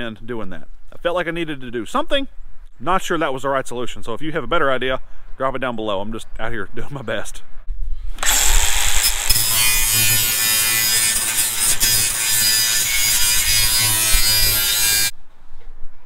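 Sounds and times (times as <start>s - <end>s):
angle grinder grinding steel: 8.2s - 15.1s.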